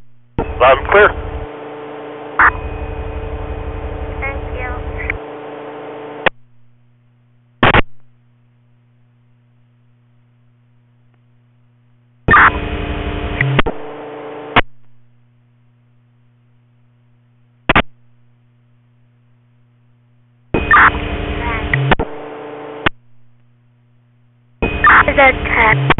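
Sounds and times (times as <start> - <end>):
low steady hum: 0.0 - 25.9
radio hiss with steady tone: 0.3 - 25.9
radio squelch static bursts: 0.4 - 2.6, 3.9 - 6.3, 12.3 - 12.7, 20.7 - 23.0, 24.8 - 25.9.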